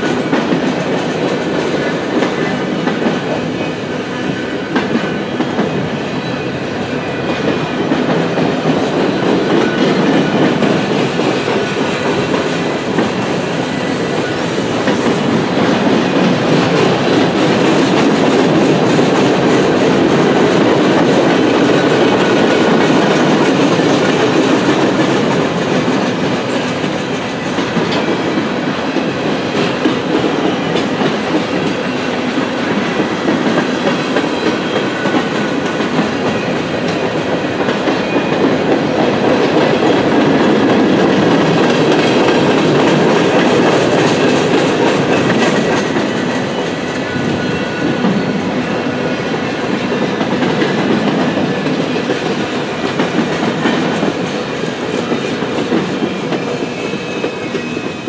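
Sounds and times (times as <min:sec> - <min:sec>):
freight train wheels rumbling: 0:00.0 - 0:58.0
wheels clacking on rails: 0:00.0 - 0:58.0.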